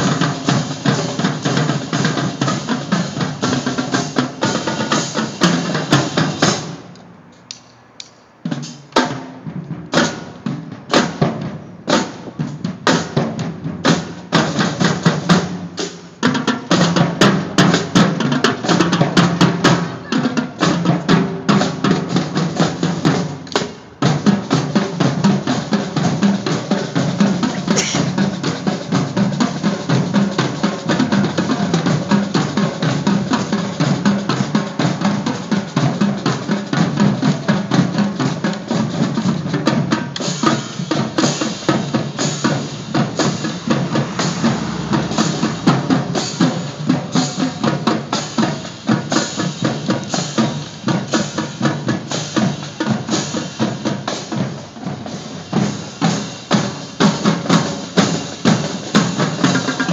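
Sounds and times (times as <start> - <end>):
marching drumline drumming: 0.0 - 6.9, 8.4 - 59.9
bright drum accents: 27.5 - 28.2, 39.8 - 48.5.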